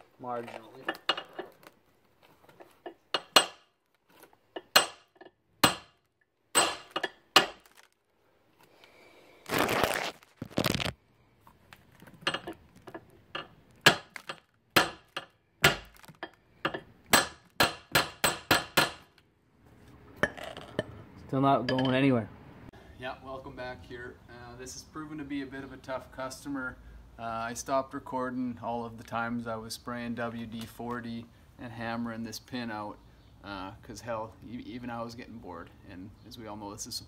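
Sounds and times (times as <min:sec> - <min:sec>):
hammer clanking on steel pin: 0:04.6 - 0:05.9.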